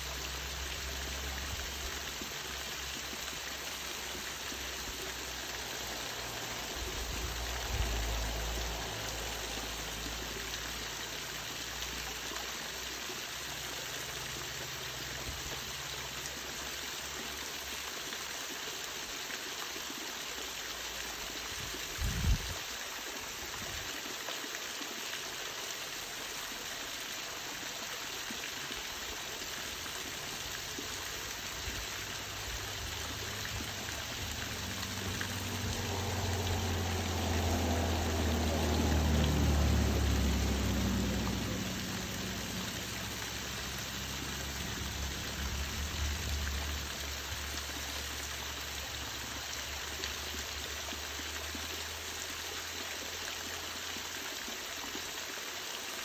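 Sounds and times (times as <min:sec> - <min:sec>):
waterfall splashing: 0:00.0 - 0:56.0
low rumble: 0:32.4 - 0:47.6.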